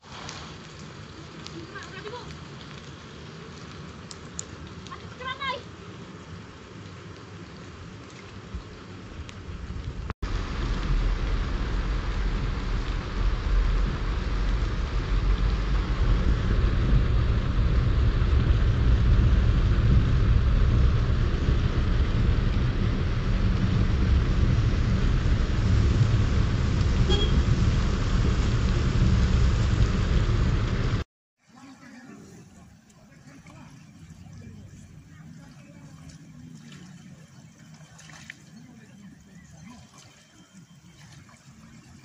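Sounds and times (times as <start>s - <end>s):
heavy rain on car windscreen: 0.0s - 31.0s
car rumbling on wet road: 0.0s - 31.1s.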